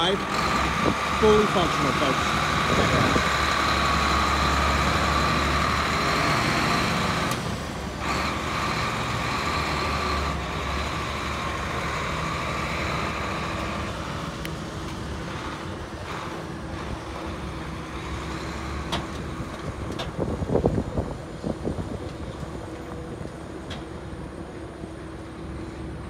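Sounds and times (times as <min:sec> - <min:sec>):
truck engine driving off: 0:00.0 - 0:26.0.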